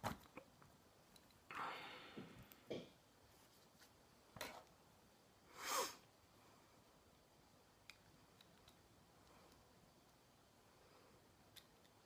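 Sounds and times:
person sniffing: 5.5s - 6.1s.

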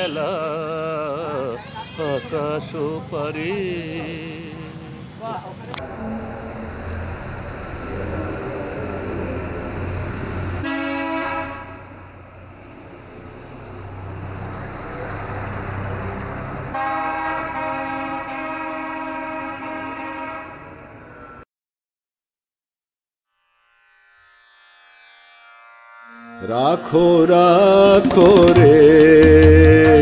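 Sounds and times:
car horn honking: 0.0s - 0.6s, 5.8s - 8.3s, 10.6s - 12.1s, 16.7s - 21.4s
vehicle engine rumbling: 0.0s - 17.6s.

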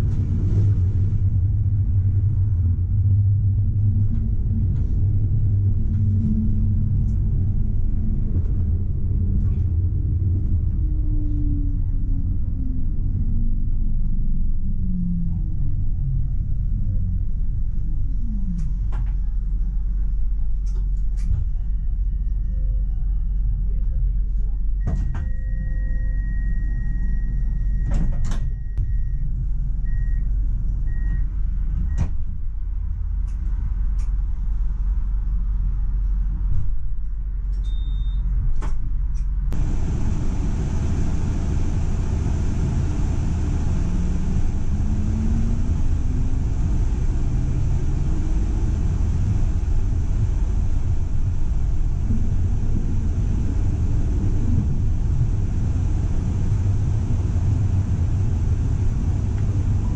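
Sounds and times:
low hum: 0.0s - 38.3s, 39.0s - 59.9s
short beeps: 37.6s - 38.2s
tram running noise: 39.5s - 59.9s
motor whine rising in pitch: 39.6s - 59.9s.

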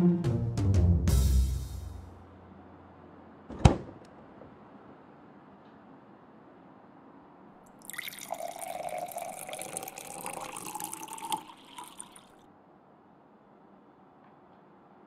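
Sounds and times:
liquor pouring into a ceramic mug: 7.7s - 12.4s.

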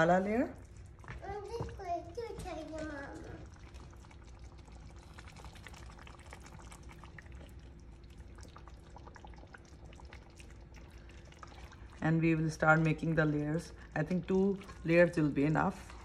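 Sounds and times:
faint steady hum: 0.0s - 16.0s
curry spooned from a pan: 13.0s - 16.0s.

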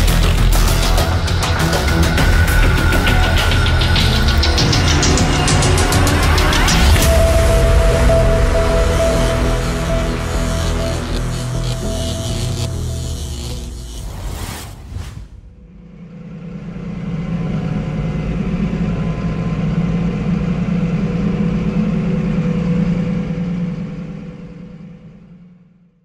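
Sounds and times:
tractor engine running: 0.0s - 14.2s
music: 0.0s - 14.3s.

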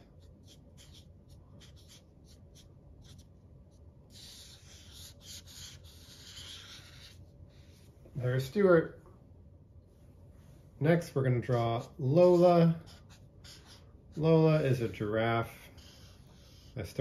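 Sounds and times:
marker scratching on paper: 0.0s - 7.9s, 11.5s - 17.0s.

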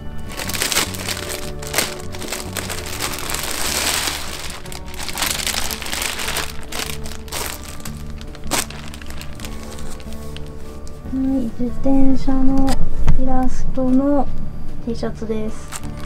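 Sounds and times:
background music: 0.0s - 16.0s
plastic bag crinkling: 0.3s - 10.8s, 15.6s - 16.0s.

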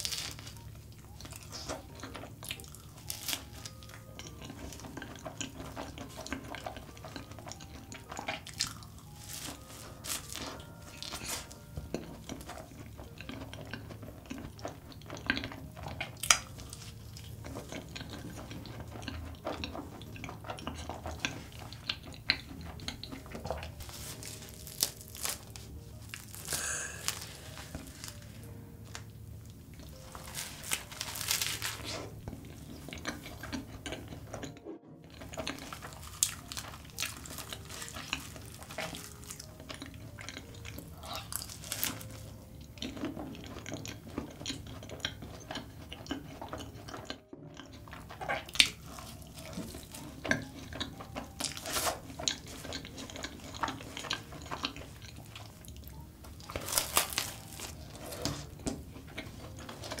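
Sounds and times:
chewing soft pastry: 0.0s - 60.0s.

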